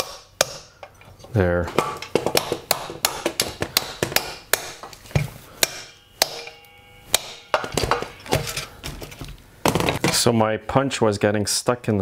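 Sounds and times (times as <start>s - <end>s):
hammer striking steel punch: 0.0s - 0.8s, 1.7s - 8.7s
metal ringing: 1.8s - 9.2s.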